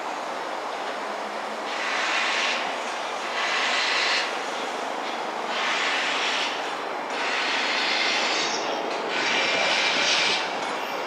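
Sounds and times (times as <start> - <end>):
hiss: 1.6 - 4.9, 5.5 - 10.5.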